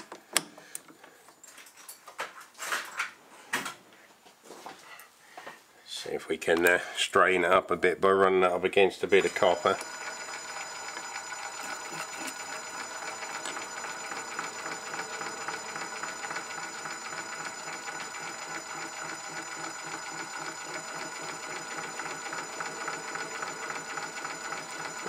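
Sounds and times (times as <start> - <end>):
metal lathe whirring and rattling: 9.1 - 25.0.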